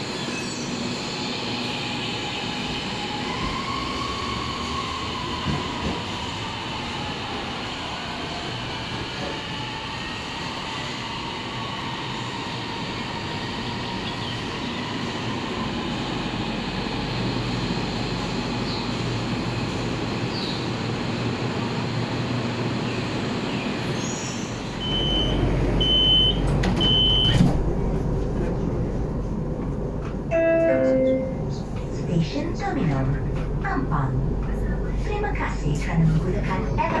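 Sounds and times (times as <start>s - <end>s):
train rumble: 0.0s - 37.0s.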